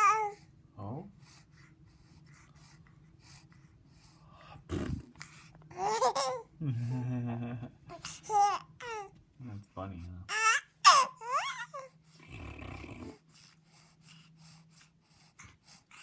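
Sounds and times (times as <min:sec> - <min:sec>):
baby cooing and squealing: 0:00.0 - 0:00.4, 0:10.3 - 0:11.9.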